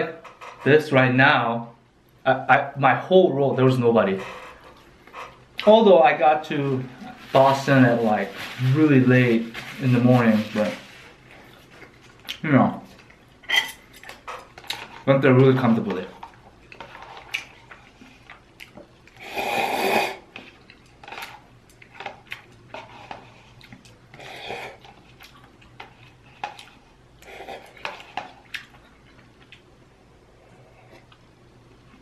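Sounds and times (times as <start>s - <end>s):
chewing: 16.2s - 19.3s, 20.3s - 29.7s.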